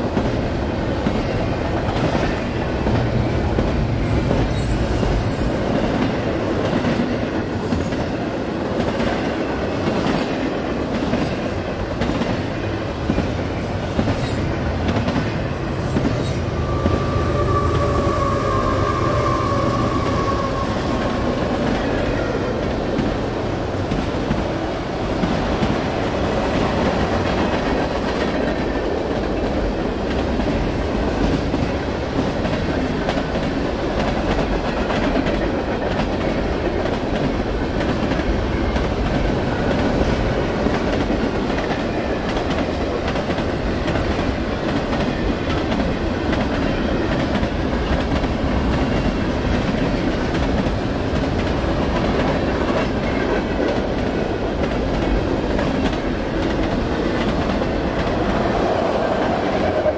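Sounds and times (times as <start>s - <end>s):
train wheels rumbling on rail: 0.0s - 59.9s
rail clicking: 31.2s - 59.9s.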